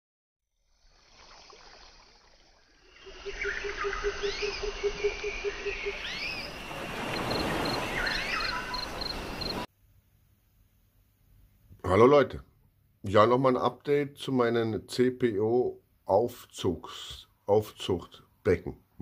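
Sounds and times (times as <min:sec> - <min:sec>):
animal chirps: 0:03.2 - 0:09.7.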